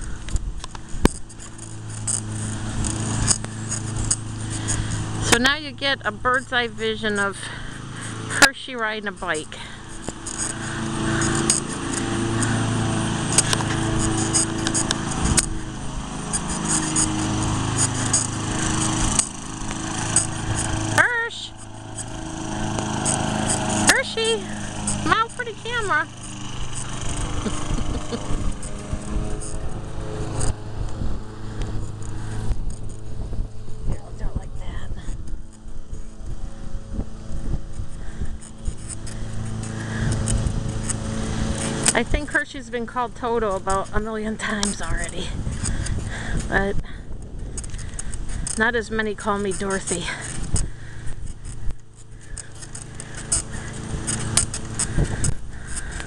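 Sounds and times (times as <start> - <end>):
bicycle rattling clicks: 0.0 - 5.6, 9.0 - 33.4, 37.4 - 42.6, 43.6 - 48.8, 49.4 - 56.0
small engine hum: 0.0 - 56.0
wind on microphone: 26.3 - 42.2, 44.9 - 48.6, 54.8 - 56.0.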